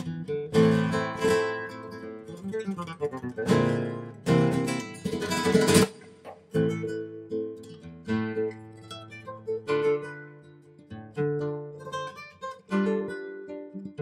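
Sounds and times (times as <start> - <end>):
acoustic guitar playing: 0.0 - 14.0.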